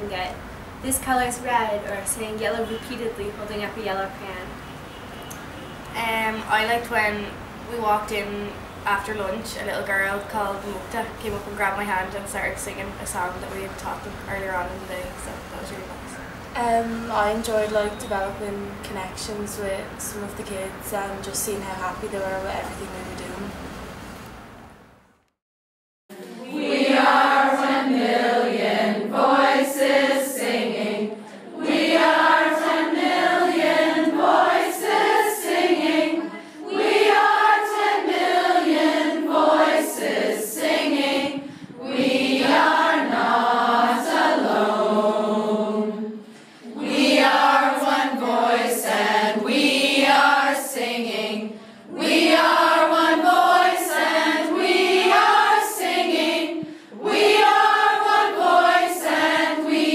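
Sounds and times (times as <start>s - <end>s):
choir singing: 26.1s - 59.9s.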